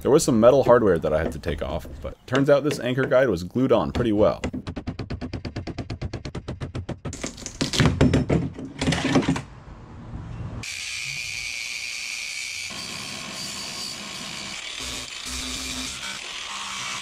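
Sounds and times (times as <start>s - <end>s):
loud rasping bursts: 10.6s - 17.0s
angle grinder grinding fibreglass: 12.7s - 17.0s.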